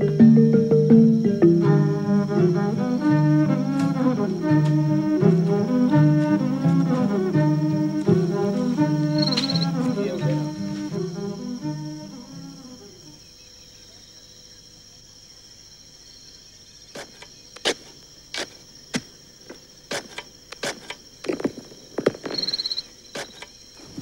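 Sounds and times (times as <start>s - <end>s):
insects shrilling: 0.0s - 24.0s
hand hoe chopping soil: 16.9s - 23.5s.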